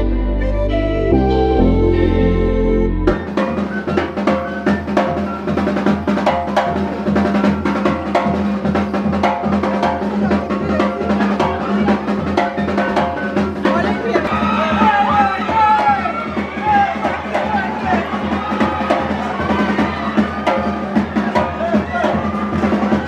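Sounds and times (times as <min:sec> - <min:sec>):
steady low tone: 0:00.0 - 0:03.2
melody of short high notes: 0:00.0 - 0:05.6
snare and bass drum strokes: 0:03.0 - 0:23.0.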